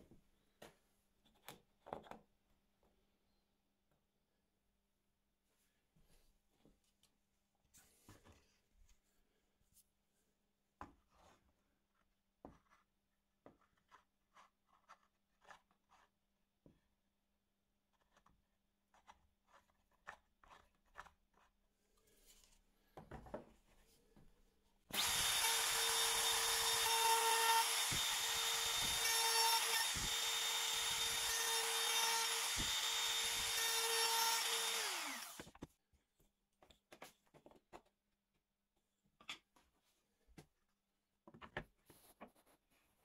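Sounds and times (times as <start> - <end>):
trim router whining: 24.9 - 35.6.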